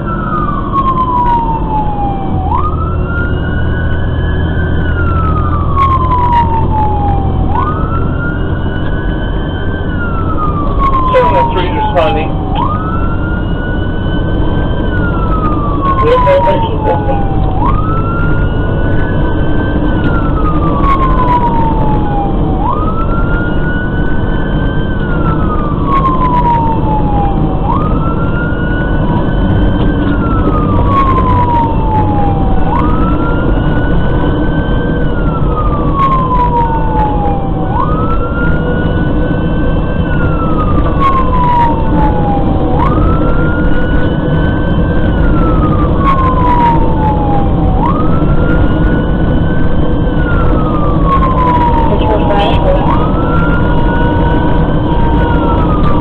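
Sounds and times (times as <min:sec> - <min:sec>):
fire engine siren wailing: 0:00.0 - 0:56.0
truck engine and road noise: 0:00.0 - 0:56.0.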